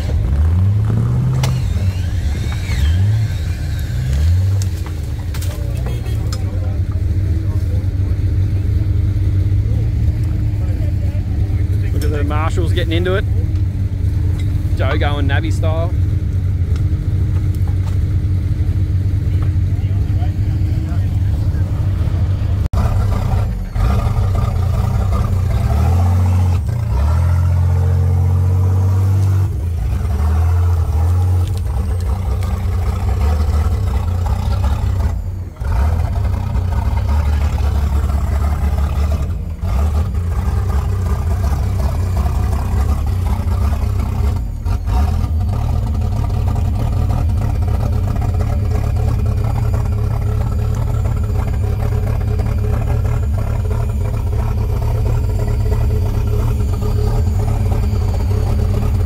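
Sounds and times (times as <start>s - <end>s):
engine idling and revving: 0.0s - 59.0s.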